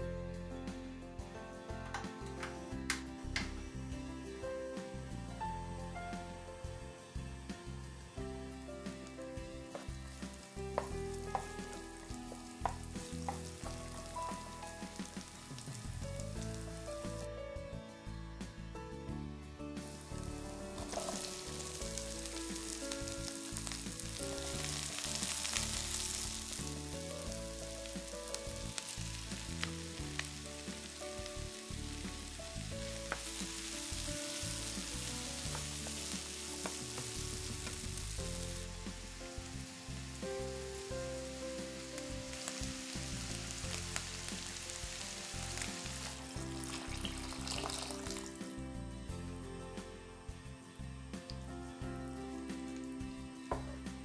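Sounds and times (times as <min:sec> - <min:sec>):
soft background music: 0:00.0 - 0:54.0
vegetables sizzling in oil: 0:06.2 - 0:17.3, 0:19.8 - 0:48.5.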